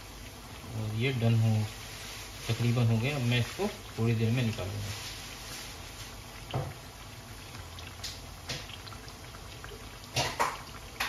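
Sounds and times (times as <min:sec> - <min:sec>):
food sizzling in oil: 0:00.0 - 0:11.0
oil popping: 0:02.3 - 0:11.0.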